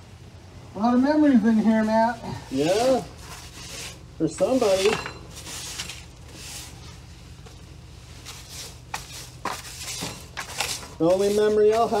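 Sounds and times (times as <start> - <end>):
low steady hum: 0.0 - 12.0
hand brush sweeping: 1.5 - 7.0, 8.2 - 12.0.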